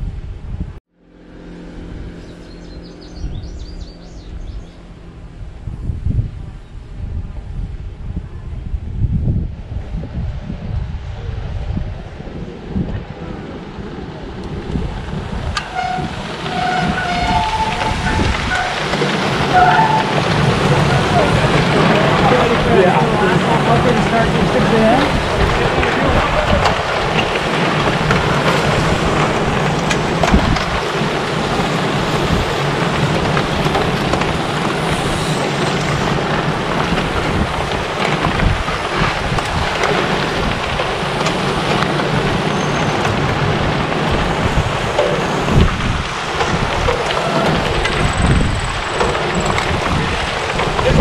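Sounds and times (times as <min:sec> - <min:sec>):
bike tyres crunching on gravel: 0:14.6 - 0:51.0
bike clicks and knocks: 0:25.0 - 0:44.2, 0:44.9 - 0:51.0.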